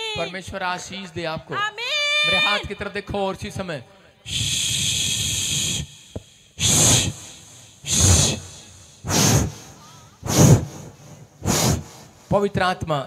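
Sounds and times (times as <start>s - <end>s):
breathy hissing into microphone: 4.3s - 12.4s.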